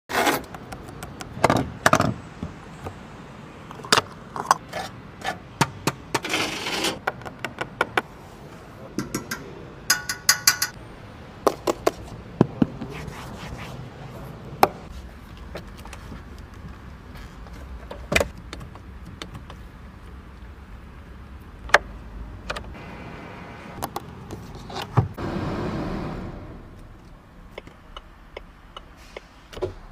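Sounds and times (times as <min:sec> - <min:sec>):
hands tapping on car parts: 0:09.0 - 0:10.8, 0:17.9 - 0:19.6
ringing metallic clicks: 0:09.0 - 0:10.8.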